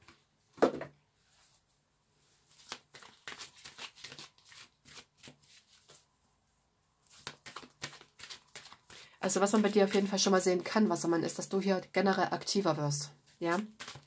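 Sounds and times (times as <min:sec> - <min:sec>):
cards being shuffled: 0:02.5 - 0:06.0, 0:07.0 - 0:10.8, 0:13.4 - 0:14.0.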